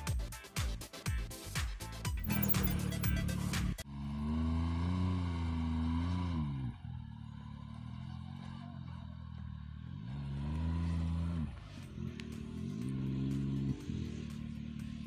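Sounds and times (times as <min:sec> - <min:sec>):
engine revving: 0:03.9 - 0:06.7, 0:09.9 - 0:15.0.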